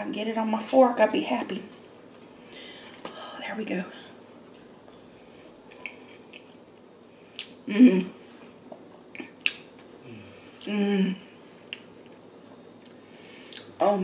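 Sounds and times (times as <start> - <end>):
person humming mmm: 7.7 - 8.1, 10.0 - 11.2.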